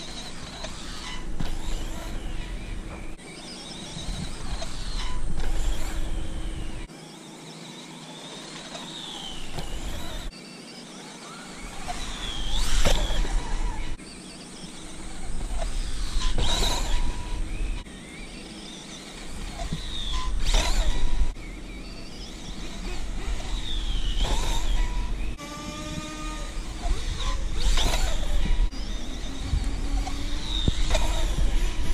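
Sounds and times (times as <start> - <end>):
electric motor whining: 0.0 - 31.9.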